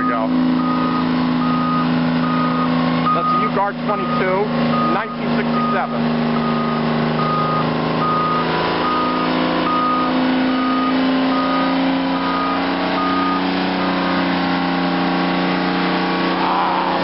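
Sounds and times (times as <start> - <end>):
backup alarm beeping: 0.0 - 13.6
haul truck diesel engine: 0.0 - 17.0.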